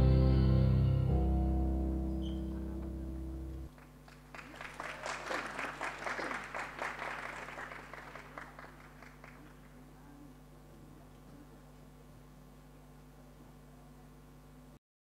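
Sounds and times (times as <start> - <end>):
audience applause: 3.7 - 10.0.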